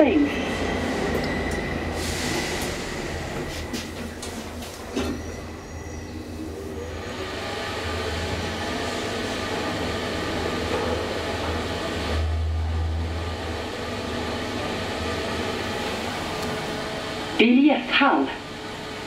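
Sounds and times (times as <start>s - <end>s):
elevator ride rushing noise: 0.0s - 19.0s
low hum: 11.5s - 17.4s.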